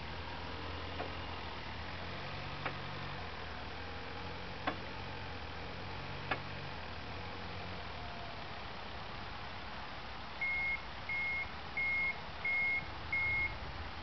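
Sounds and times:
diesel forklift engine idling: 10.4s - 13.7s.

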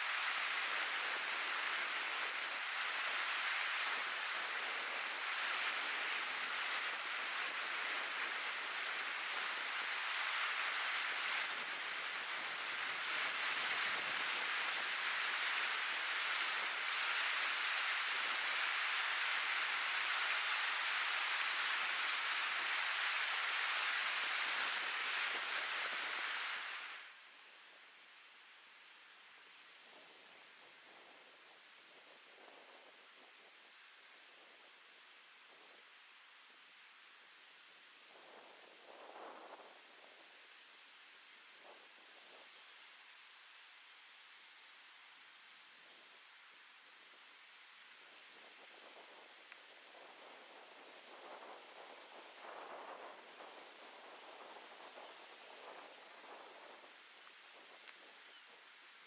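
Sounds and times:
waves breaking on beach: 0.0s - 27.2s, 47.7s - 58.1s.

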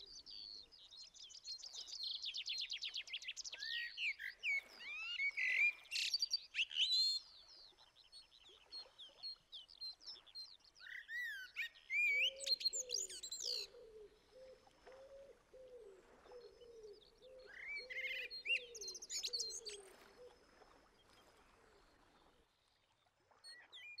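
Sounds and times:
songbirds chirping and trilling: 0.0s - 14.7s, 16.2s - 20.3s.

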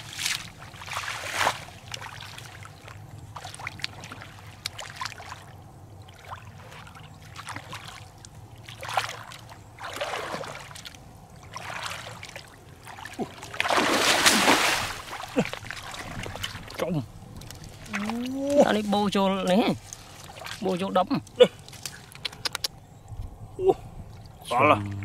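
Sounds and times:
feet wading through shallow water: 0.0s - 22.2s
hands splashing in water: 13.0s - 16.8s.

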